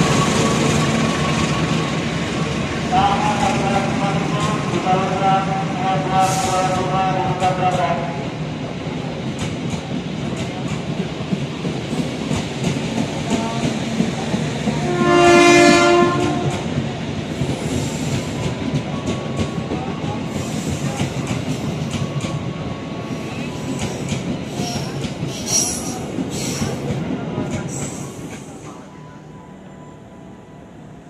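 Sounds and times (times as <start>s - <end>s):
train wheels clacking: 9.2s - 28.8s
train horn blast: 14.8s - 16.7s.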